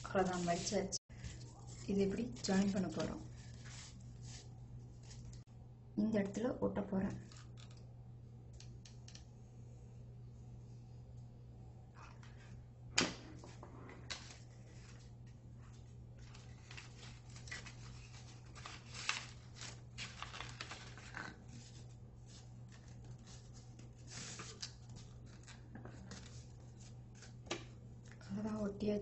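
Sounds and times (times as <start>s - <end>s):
steady low hum: 0.0s - 29.0s
paper rustling and crinkling: 0.1s - 5.4s, 7.2s - 7.8s, 13.4s - 28.2s.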